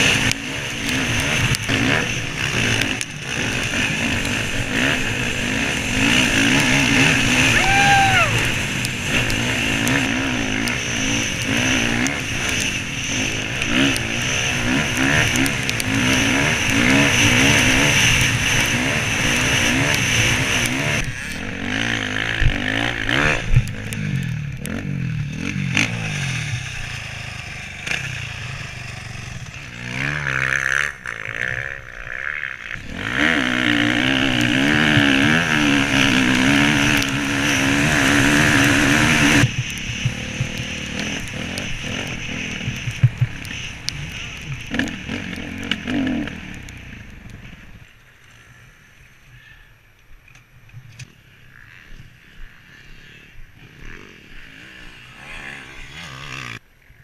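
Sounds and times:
dirt bike engine revving: 0:00.0 - 0:49.6, 0:51.3 - 0:56.6.

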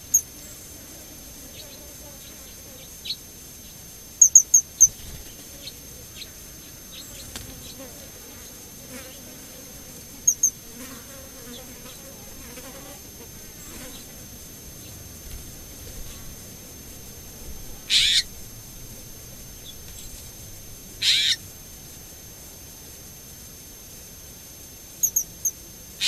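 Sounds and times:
fly buzzing: 0:04.3 - 0:21.9
bird chirping: 0:17.9 - 0:18.4.

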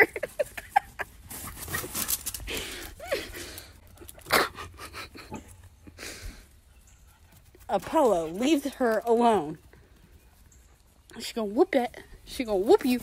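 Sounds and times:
person breathing hard: 0:02.5 - 0:03.8, 0:05.9 - 0:06.5.

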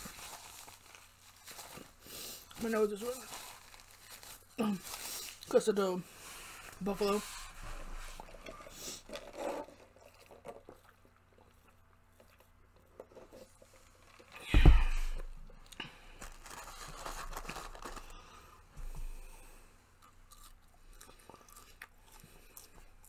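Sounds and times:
chewing and crunching: 0:07.7 - 0:14.4, 0:19.2 - 0:23.0
loud thump: 0:14.5 - 0:15.3.

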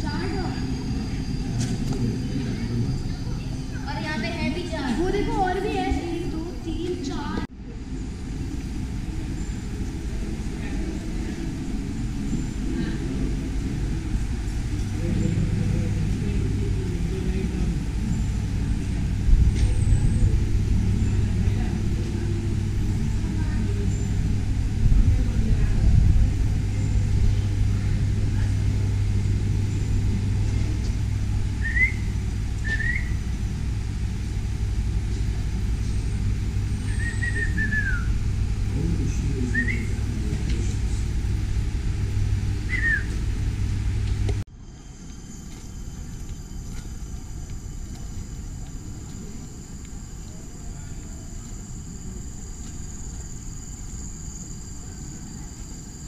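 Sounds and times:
high-pitched insect drone: 0:00.0 - 0:04.6, 0:44.6 - 0:56.0
steady low rumble: 0:00.0 - 0:56.0
whistled bird calls: 0:31.5 - 0:33.2, 0:36.7 - 0:38.2, 0:39.4 - 0:40.1, 0:42.7 - 0:43.2.

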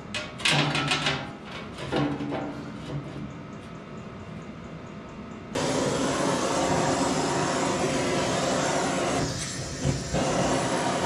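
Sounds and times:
welder arc buzzing: 0:05.6 - 0:11.0.

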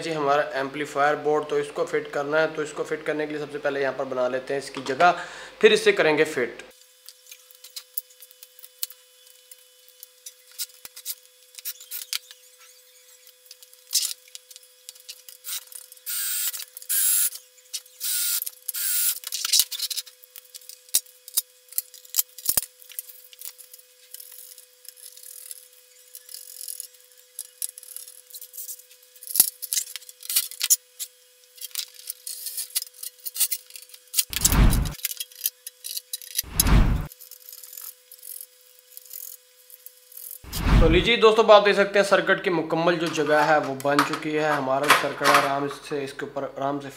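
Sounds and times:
heavy thumps: 0:34.3 - 0:35.0, 0:36.5 - 0:37.1.

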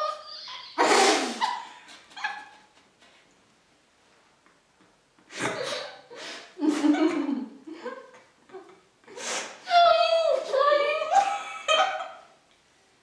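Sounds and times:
muffled laughter and squeals: 0:00.0 - 0:02.7.

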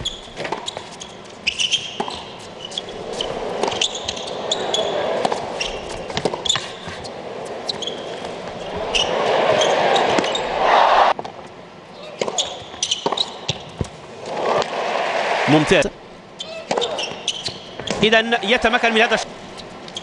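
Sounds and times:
shoe squeaks: 0:00.0 - 0:10.5, 0:12.0 - 0:13.7, 0:16.4 - 0:18.0, 0:19.5 - 0:20.0
crowd noise: 0:02.5 - 0:11.2, 0:14.1 - 0:16.0
crowd cheering: 0:03.0 - 0:11.2, 0:14.2 - 0:16.0
racket striking tennis ball: 0:03.1 - 0:10.5.

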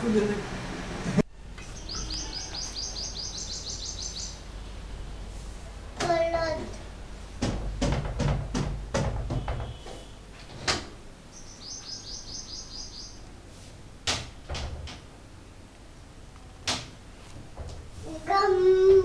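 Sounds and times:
bird chirping: 0:01.6 - 0:04.5, 0:11.3 - 0:13.3
sharp knocks: 0:07.4 - 0:10.1.

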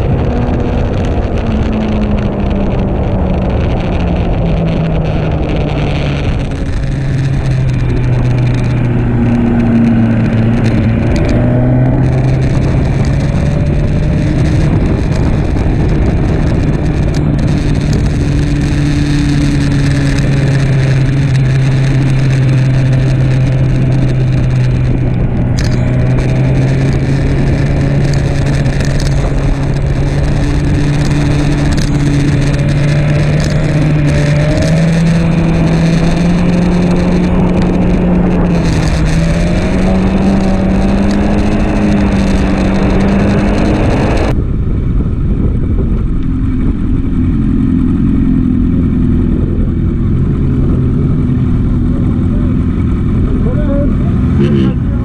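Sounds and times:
motorcycle engine at speed: 0:00.0 - 0:55.0
wind rush: 0:00.0 - 0:55.0.

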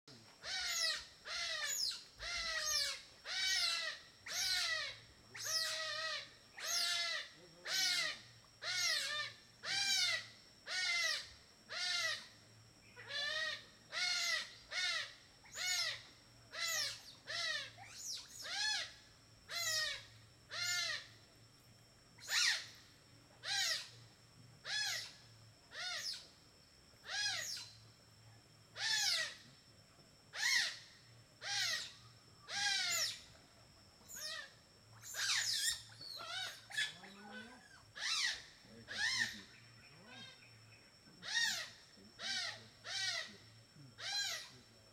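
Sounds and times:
steady high whine: 0:00.1 - 0:44.9
animal high-pitched cries: 0:00.4 - 0:12.2.

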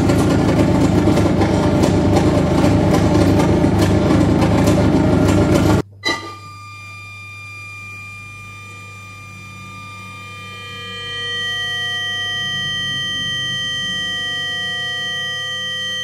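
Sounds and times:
low hum: 0:00.0 - 0:16.0
saxophone feedback noise: 0:05.6 - 0:16.0
thin high tones: 0:07.7 - 0:16.0.

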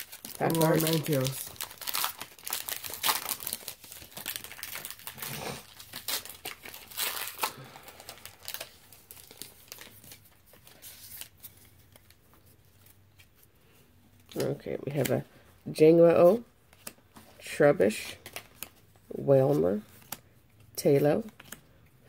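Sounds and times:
foil wrapper crinkling and tearing: 0:00.0 - 0:12.2.

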